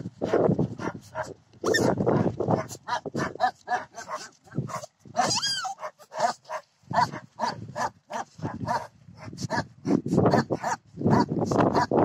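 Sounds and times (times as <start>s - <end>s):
puppy squealing whine: 5.2s - 5.8s.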